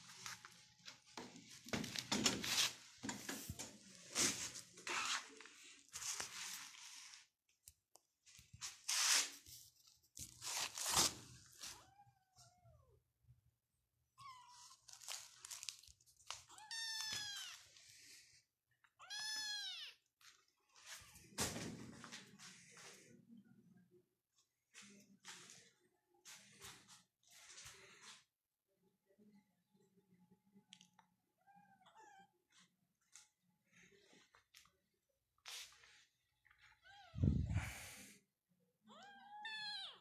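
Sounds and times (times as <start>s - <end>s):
kitten meowing: 16.5s - 17.6s, 19.0s - 20.0s.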